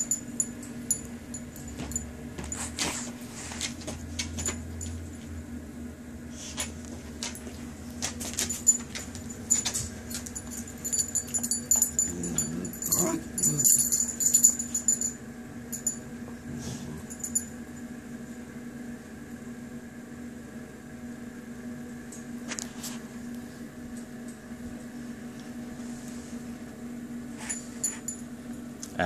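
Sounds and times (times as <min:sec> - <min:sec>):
metallic jingling of chain collar: 0:08.4 - 0:16.0.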